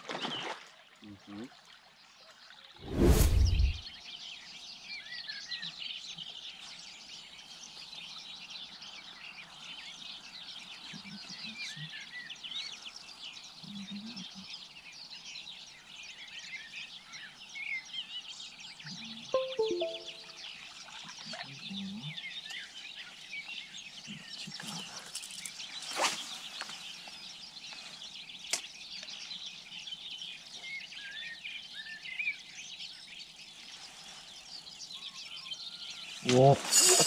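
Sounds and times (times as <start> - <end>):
brief rush of noise: 2.8 - 3.8
songbirds chirping and trilling: 2.8 - 37.0.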